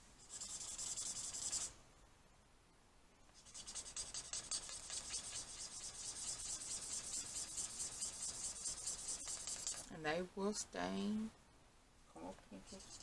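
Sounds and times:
marker scribbling on paper: 0:00.2 - 0:01.7, 0:03.4 - 0:09.9, 0:12.6 - 0:13.0.

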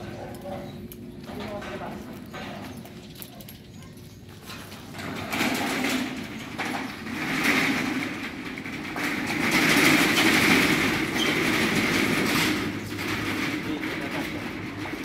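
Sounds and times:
shutter door slats rattling: 0:04.9 - 0:14.9.

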